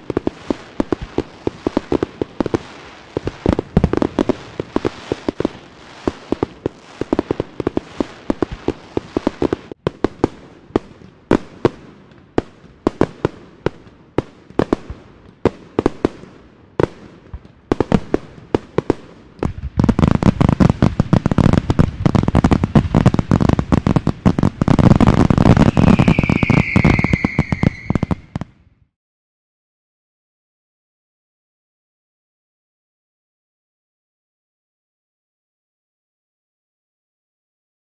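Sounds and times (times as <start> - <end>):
firework bangs: 0.0 - 13.8, 16.8 - 28.6
firecrackers crackling: 0.0 - 28.6
high firework whistle: 25.5 - 28.5.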